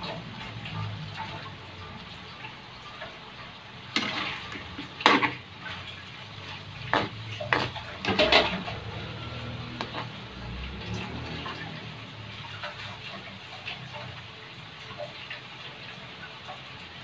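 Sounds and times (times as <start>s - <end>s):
metal ladle scraping wok: 4.0s - 5.5s, 6.4s - 11.4s.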